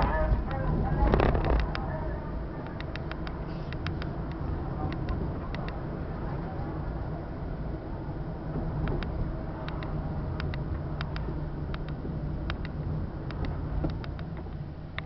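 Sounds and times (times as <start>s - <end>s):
car cabin engine and road noise: 0.0s - 15.0s.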